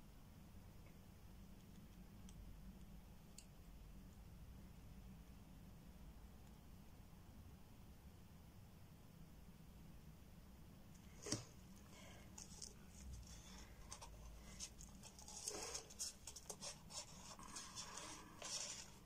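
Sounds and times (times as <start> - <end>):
stirring stick scratching in cup: 11.2 - 19.0.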